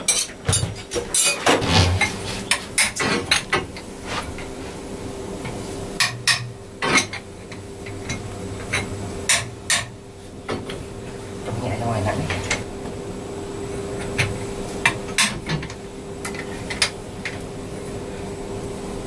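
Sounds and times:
metal tools clanking on engine: 0:00.0 - 0:02.2.

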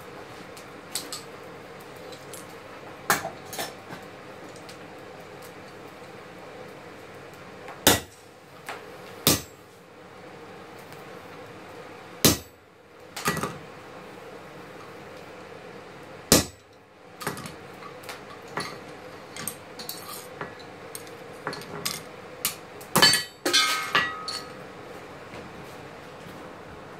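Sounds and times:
hammer striking anvil: 0:09.3 - 0:09.5, 0:16.3 - 0:16.6.

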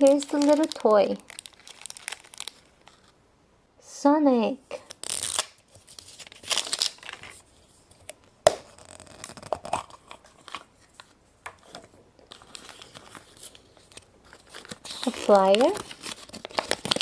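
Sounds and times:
wrapper crinkling and tearing: 0:00.0 - 0:03.2, 0:04.7 - 0:07.4, 0:08.6 - 0:10.7, 0:12.3 - 0:17.0.

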